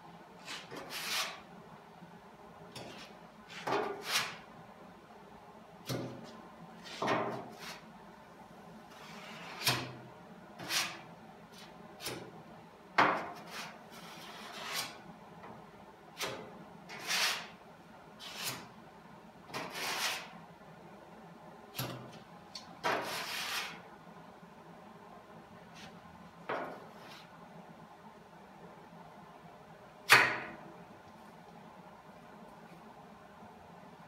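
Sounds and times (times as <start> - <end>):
spreader scraping body filler: 19.6 - 20.4.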